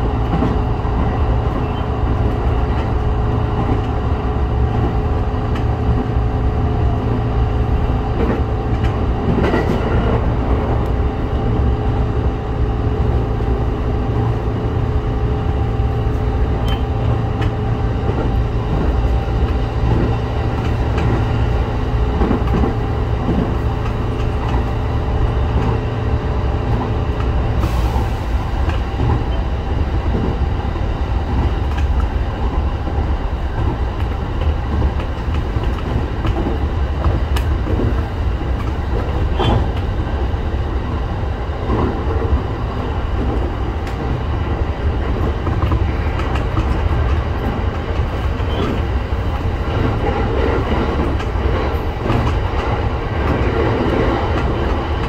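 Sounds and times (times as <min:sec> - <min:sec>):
train wheels rumbling: 0:00.0 - 0:55.0
wheels clacking over rail joint: 0:32.9 - 0:40.0, 0:41.6 - 0:55.0.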